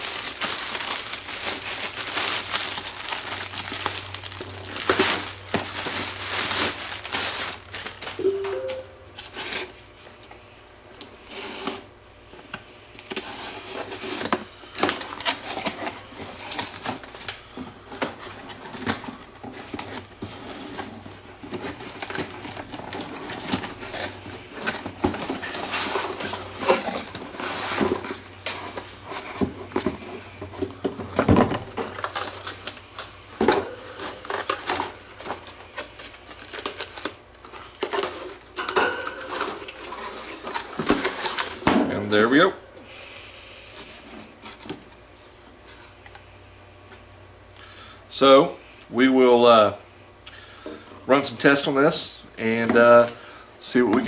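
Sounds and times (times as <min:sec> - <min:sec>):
cardboard crackling and tapping: 0:00.0 - 0:08.2.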